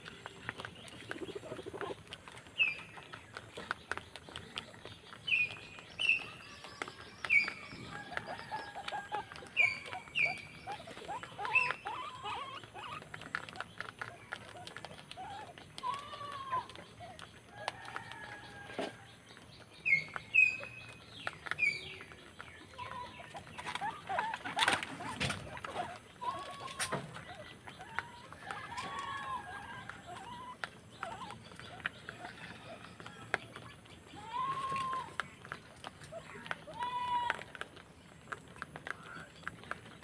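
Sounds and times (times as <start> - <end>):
high chirping animal calls: 0.5 - 17.4, 19.7 - 37.2
lower arched animal calls: 9.6 - 13.1.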